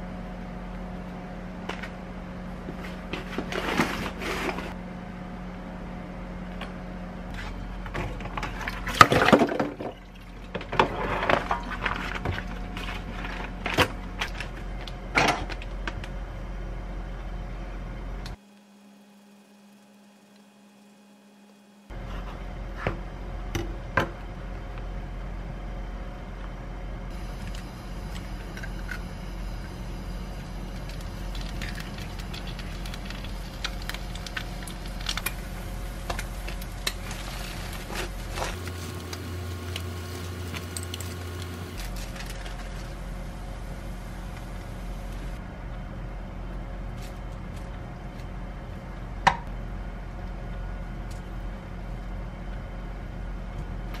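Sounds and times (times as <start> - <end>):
steady low hum: 0.0 - 54.0
egg frying in a pan: 18.4 - 21.8, 27.1 - 45.4.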